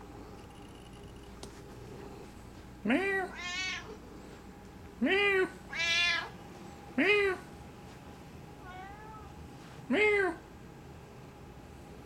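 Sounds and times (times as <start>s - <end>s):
cats meowing: 3.0s - 4.0s, 5.7s - 6.4s, 8.6s - 9.3s.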